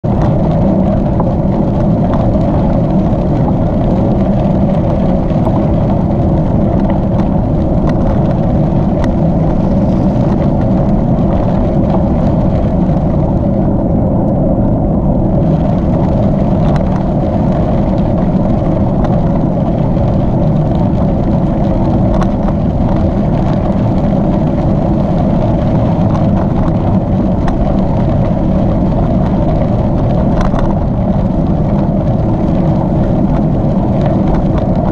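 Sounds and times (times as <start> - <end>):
wind rumble on microphone: 0.0 - 34.9
tyres rolling on gravel: 0.1 - 13.6
small knocks and clicks from bumps: 6.8 - 9.3, 30.3 - 30.8.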